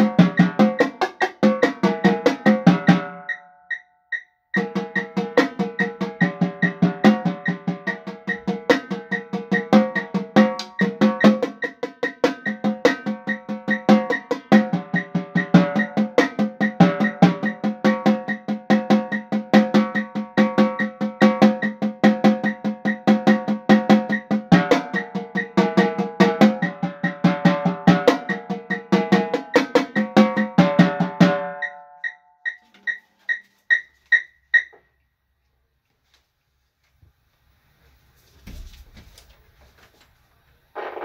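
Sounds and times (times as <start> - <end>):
tenor drums played with sticks: 0.0 - 3.4, 4.6 - 32.2.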